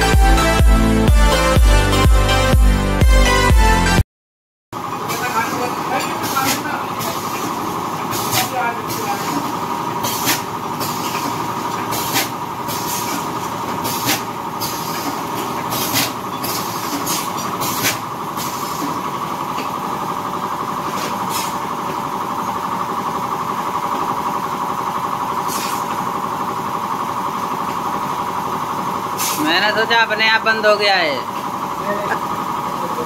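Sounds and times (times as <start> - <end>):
packing machine hum: 4.8 - 33.0
sharp bursts of air: 10.0 - 13.2, 13.8 - 19.0, 20.9 - 21.7, 25.3 - 26.2, 29.1 - 29.6.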